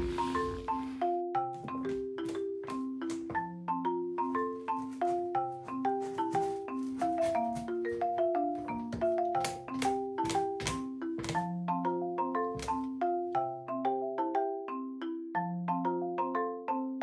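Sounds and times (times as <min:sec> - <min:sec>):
marimba melody: 0:00.0 - 0:17.0
percussion taps: 0:01.4 - 0:13.2.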